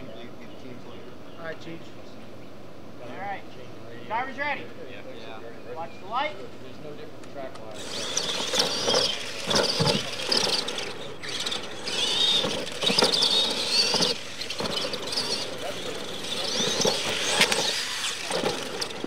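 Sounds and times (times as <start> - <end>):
electric motors whining: 7.7 - 19.0.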